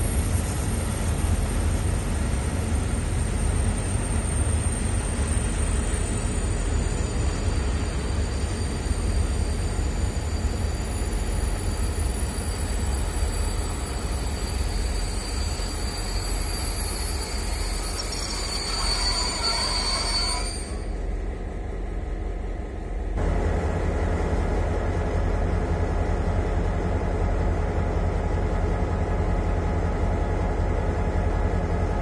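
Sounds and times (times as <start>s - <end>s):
high-pitched wheel squeal: 4.0s - 21.0s.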